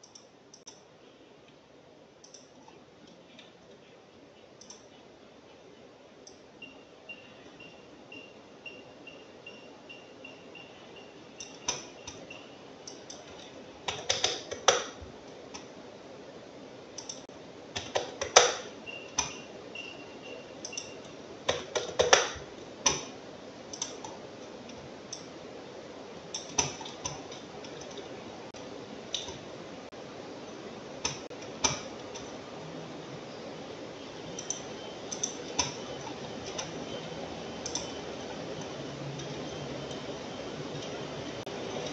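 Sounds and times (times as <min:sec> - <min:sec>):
low room hiss: 0:00.0 - 0:41.9
computer mouse and keyboard clicks: 0:02.2 - 0:03.8, 0:04.6 - 0:05.0, 0:11.4 - 0:15.7, 0:17.0 - 0:17.2, 0:17.8 - 0:19.5, 0:20.6 - 0:25.3, 0:26.3 - 0:29.5, 0:31.0 - 0:32.4, 0:34.4 - 0:36.9, 0:37.6 - 0:40.1.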